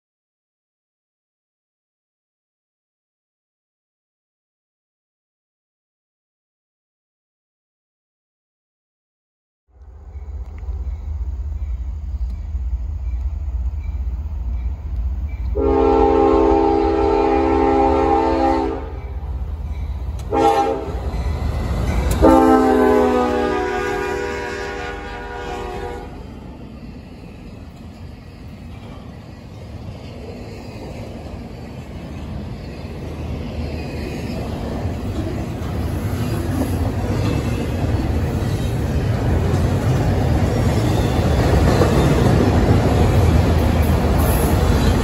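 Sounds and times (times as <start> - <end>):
freight train cars rolling past: 9.7 - 45.0
steel wheels rumbling on rails: 9.8 - 45.0
locomotive horn blasts: 15.5 - 19.0, 20.3 - 21.1, 22.1 - 26.2.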